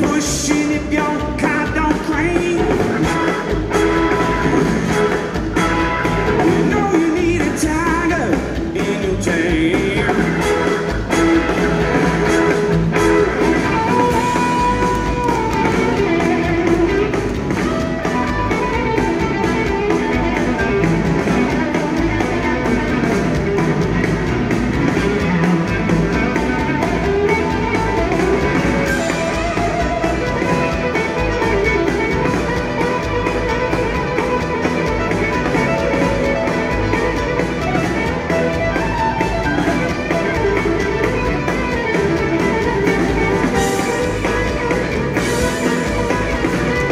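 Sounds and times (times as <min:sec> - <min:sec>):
bass guitar: 0:00.0 - 0:46.9
drums: 0:00.0 - 0:46.9
electric guitar solo: 0:10.3 - 0:46.9.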